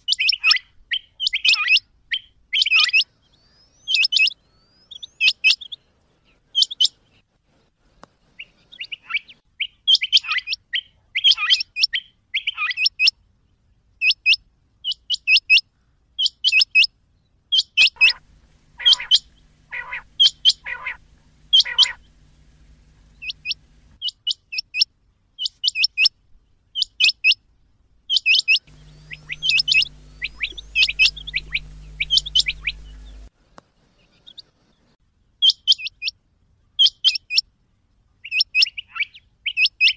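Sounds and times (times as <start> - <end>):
quail calling: 17.8 - 24.2, 28.1 - 33.3
faint low hum: 18.0 - 24.0, 28.6 - 34.9.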